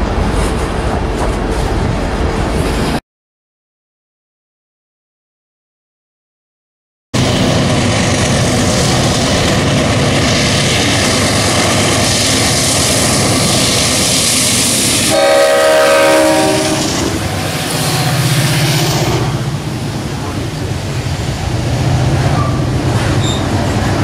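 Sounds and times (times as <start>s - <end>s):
freight train engine and wheel rumble: 0.0s - 3.0s, 7.2s - 24.0s
train horn: 15.1s - 17.2s.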